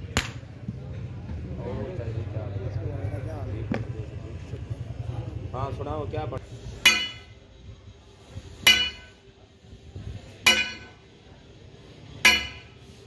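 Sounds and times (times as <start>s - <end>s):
sledgehammer clanging on steel: 6.8s - 7.4s, 8.6s - 9.2s, 10.4s - 11.1s, 12.2s - 12.9s.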